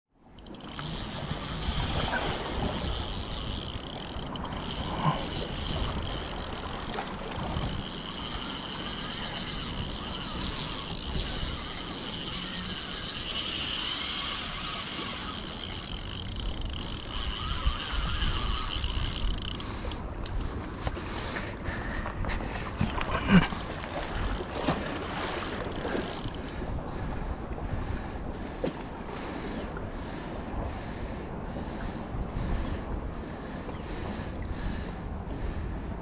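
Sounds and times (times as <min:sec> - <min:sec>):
fishing reel ratcheting and whining: 0:00.3 - 0:20.5, 0:23.3 - 0:26.5.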